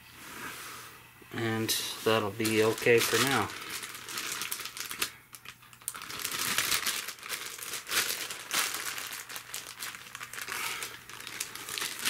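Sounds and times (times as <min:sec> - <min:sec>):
plastic bag crinkling: 0:02.0 - 0:12.0.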